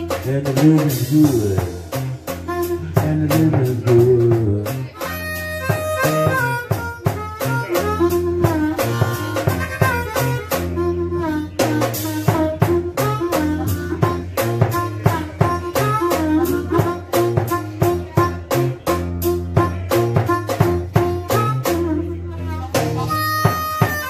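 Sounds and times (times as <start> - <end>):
blues harmonica solo: 0.0 - 24.0
drum kit: 0.0 - 24.0
low bass line: 0.0 - 24.0.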